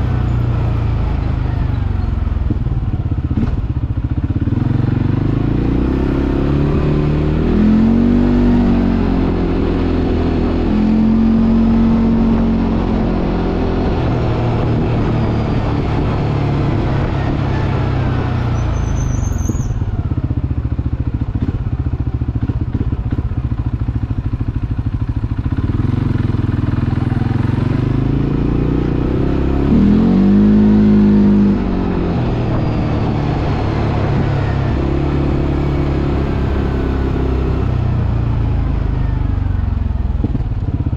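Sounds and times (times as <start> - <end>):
atv engine revving: 0.0 - 40.9
high squeak: 18.5 - 19.9.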